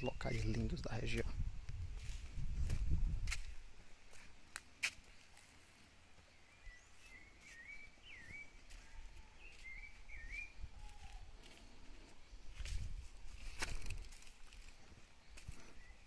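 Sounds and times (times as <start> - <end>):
faint outdoor background noise: 0.0 - 16.0
bird singing whistled notes: 6.3 - 11.3.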